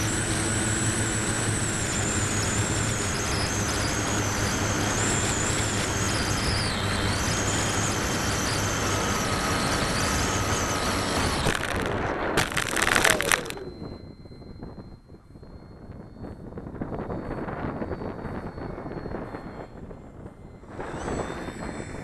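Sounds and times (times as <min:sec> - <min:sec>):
electric motor whining: 0:00.0 - 0:22.0
plane crashing into grass: 0:11.4 - 0:13.6.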